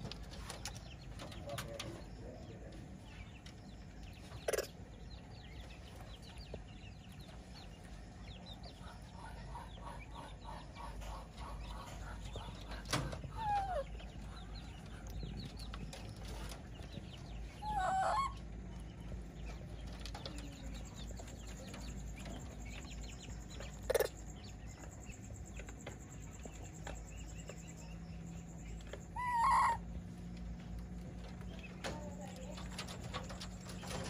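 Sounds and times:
faint ticks and knocks: 5.5s - 17.6s, 30.0s - 34.0s.

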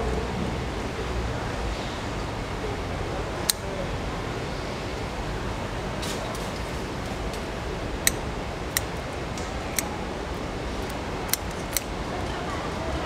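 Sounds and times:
steady background hum: 0.0s - 13.0s
shears snipping shell: 8.0s - 10.0s, 10.8s - 11.9s.

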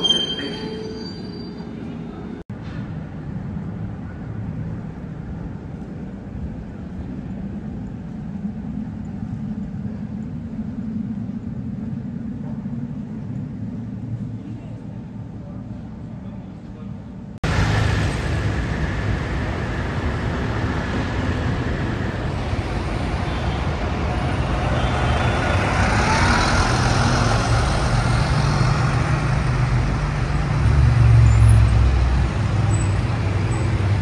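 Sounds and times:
low engine rumble: 2.3s - 34.0s
bus passing with hiss: 17.4s - 34.0s
cars driving past: 17.4s - 34.0s.

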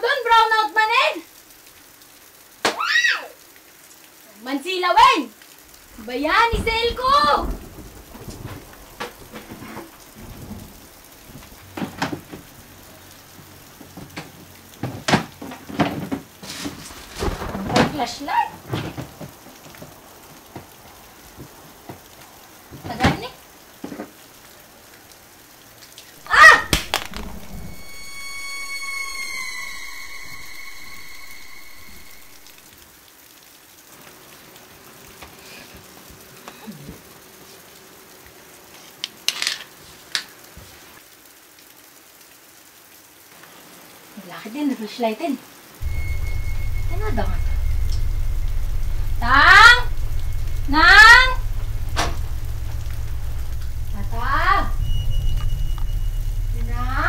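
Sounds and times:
faint hiss: 0.0s - 57.0s
steady rain: 0.0s - 57.0s
low sliding sound: 26.2s - 32.6s, 45.8s - 57.0s
high ringing tone: 26.6s - 32.6s, 45.8s - 57.0s.

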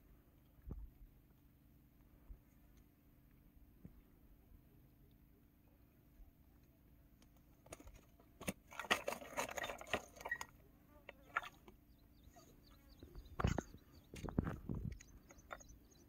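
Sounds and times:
fish handling clicks and taps: 6.6s - 10.5s.

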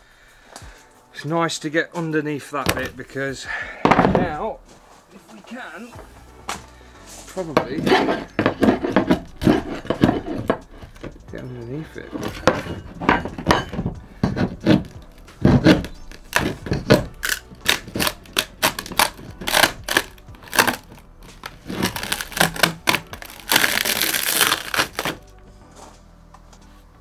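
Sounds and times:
wood tearing and scraping: 7.4s - 25.3s
pry bar cracking wood: 7.6s - 11.2s, 12.1s - 25.3s.

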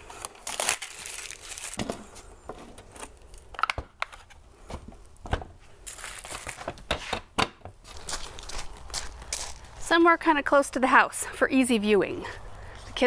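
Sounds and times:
plastic packaging crinkling: 0.0s - 2.2s, 5.8s - 6.9s.

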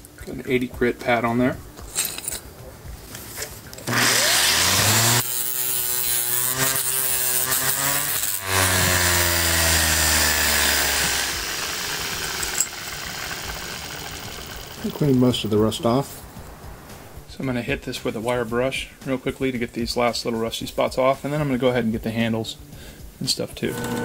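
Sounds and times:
orbital sander grinding metal: 3.8s - 15.4s, 23.7s - 24.0s.

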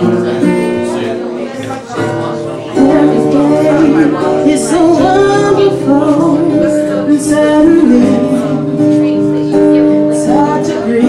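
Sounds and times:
acoustic guitar: 0.0s - 11.0s
woman singing: 2.7s - 11.0s.

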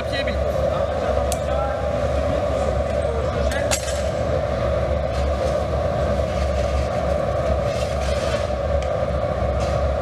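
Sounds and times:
workshop machinery drone: 0.0s - 10.0s.

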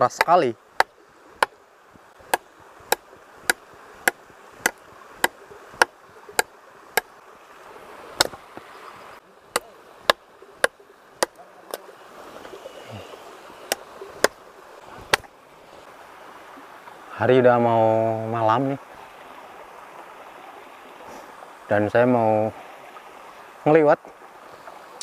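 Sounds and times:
stream rushing: 0.0s - 25.0s
chopping hard wood: 2.3s - 7.1s, 8.2s - 8.4s, 9.6s - 11.4s, 15.1s - 15.3s.

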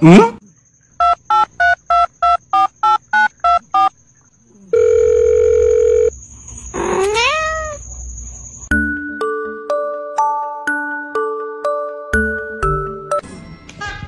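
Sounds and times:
cat meowing: 6.8s - 7.8s.

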